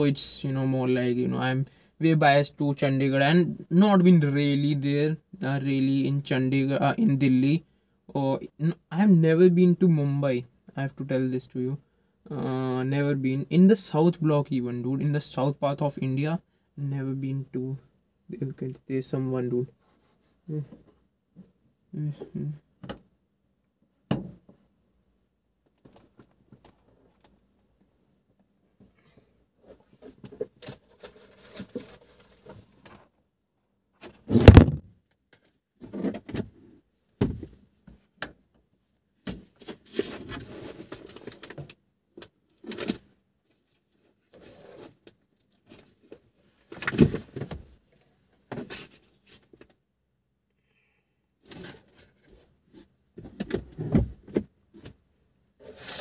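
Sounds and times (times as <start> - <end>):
thumps: 34.3 - 34.9
rustling: 55.6 - 56.0.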